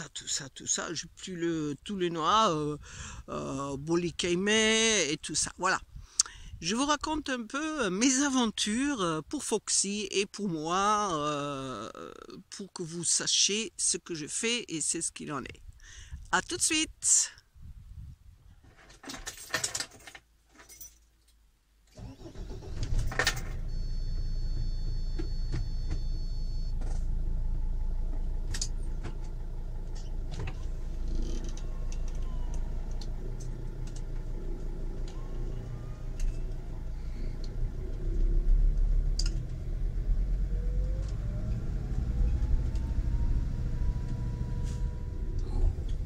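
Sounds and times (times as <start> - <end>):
vehicle engine starting and idling: 21.9 - 46.0
steady high beep: 23.7 - 26.8
rising whine: 29.8 - 46.0.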